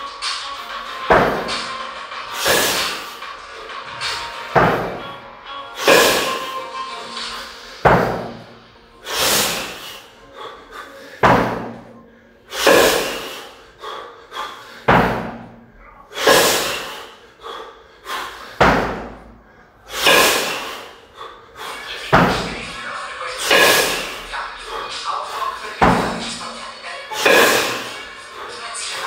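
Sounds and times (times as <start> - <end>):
kettlebells knocking: 1.1 - 5.1, 5.8 - 6.5, 7.8 - 8.6, 11.2 - 12.0, 14.8 - 16.9, 18.6 - 20.8, 22.0 - 24.4, 25.6 - 26.4
forced hissing breath: 2.3 - 5.0, 5.8 - 15.4, 16.1 - 29.0.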